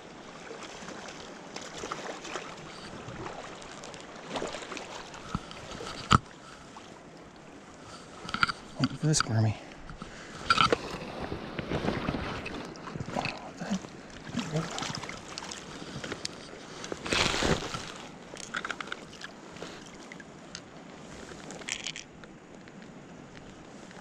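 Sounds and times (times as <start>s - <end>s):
splashes of fish in a net: 17.0s - 18.1s.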